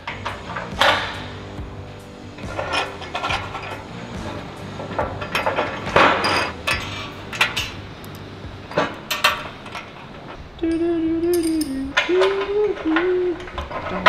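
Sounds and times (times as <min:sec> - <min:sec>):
metal scrape: 0:00.0 - 0:08.0
metal fittings clinking: 0:02.4 - 0:04.0, 0:04.8 - 0:14.0.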